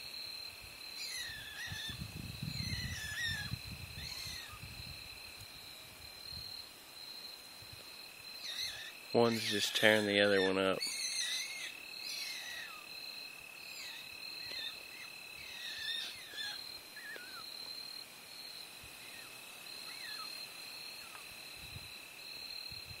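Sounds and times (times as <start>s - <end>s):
insect chorus: 0.0s - 23.0s
skunks squeaking: 1.0s - 4.6s, 8.4s - 12.9s, 13.7s - 17.4s.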